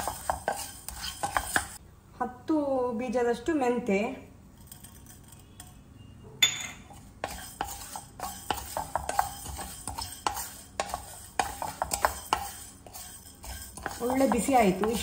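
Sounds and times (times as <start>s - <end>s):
spatula tapping: 0.0s - 1.8s, 6.4s - 15.0s
seeds rattling on metal pan: 7.4s - 15.0s.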